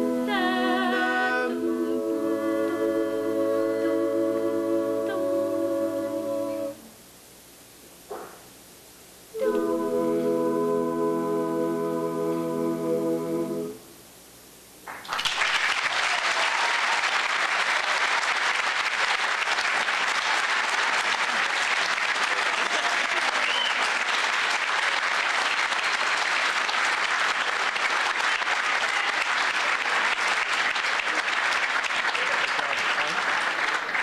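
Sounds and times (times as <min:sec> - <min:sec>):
audience applauding: 0:14.9 - 0:34.0.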